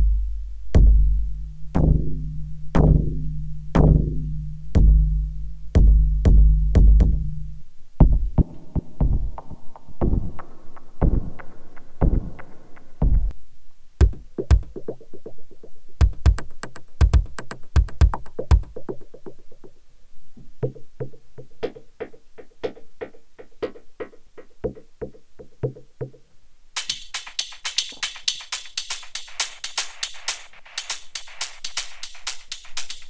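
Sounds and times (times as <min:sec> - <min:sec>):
deep electronic kick: 0:00.0 - 0:10.4, 0:11.0 - 0:11.4, 0:12.0 - 0:12.4, 0:13.0 - 0:13.3, 0:14.0 - 0:15.0, 0:16.0 - 0:18.8
hi-hat-like ticking: 0:14.0 - 0:19.7, 0:26.8 - 0:33.0.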